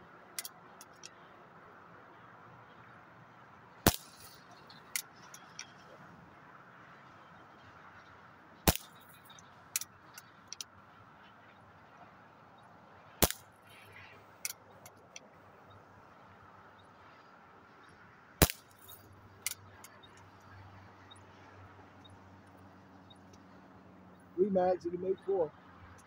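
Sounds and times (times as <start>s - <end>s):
air pistol shots: 3.8s - 4.4s, 8.7s - 9.1s, 13.2s - 13.4s, 18.4s - 18.8s.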